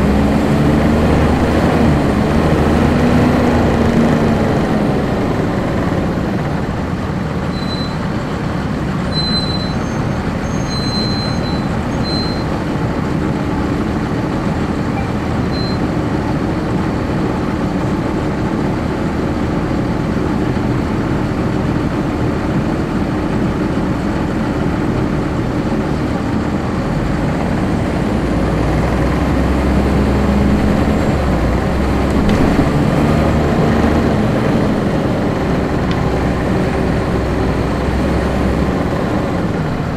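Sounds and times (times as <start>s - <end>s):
bus diesel engine running: 0.0s - 39.9s
high-pitched squeaks: 7.5s - 8.1s, 9.1s - 12.5s.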